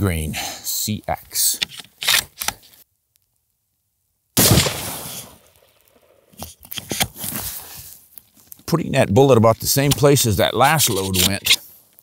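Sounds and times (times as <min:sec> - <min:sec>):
rifle shot: 0:04.4 - 0:05.5.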